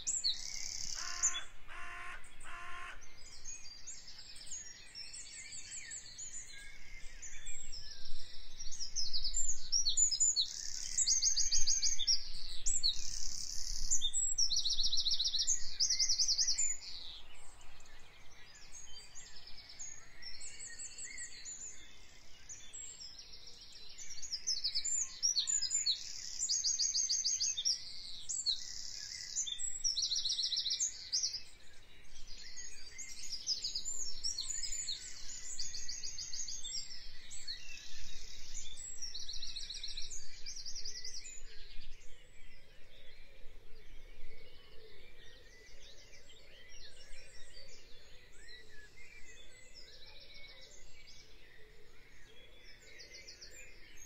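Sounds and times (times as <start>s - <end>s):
birds trilling and chirping: 0.4s - 5.0s.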